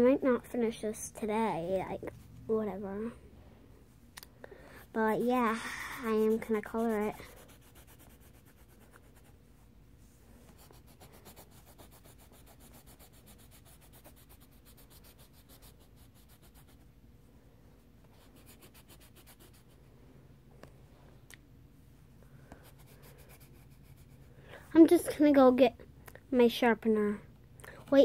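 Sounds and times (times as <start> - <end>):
pencil scratching on paper: 4.8 - 9.4, 10.5 - 16.8, 18.1 - 19.8, 22.6 - 24.3.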